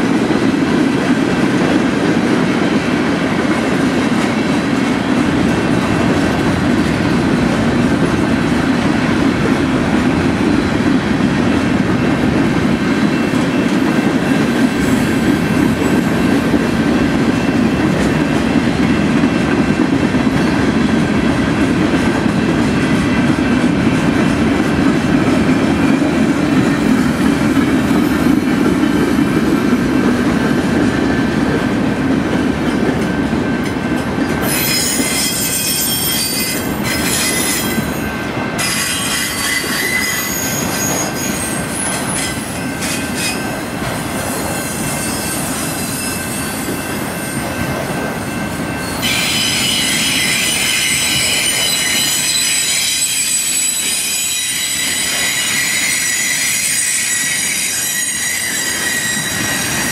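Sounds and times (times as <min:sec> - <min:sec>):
train wheels rumbling on rail: 0:00.0 - 0:59.9
wheel squeal: 0:34.4 - 0:37.8, 0:38.6 - 0:43.4, 0:48.8 - 0:59.9.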